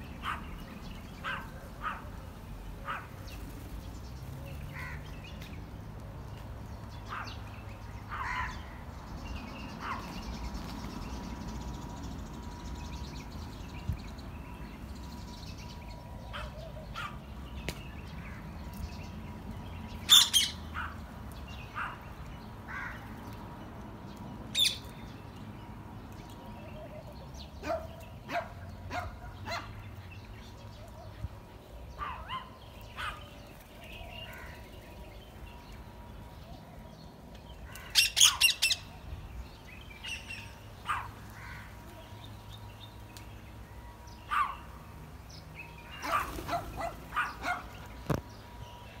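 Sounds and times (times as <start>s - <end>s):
parakeets calling: 19.9s - 23.2s, 24.5s - 25.0s, 37.7s - 39.0s, 44.2s - 48.3s.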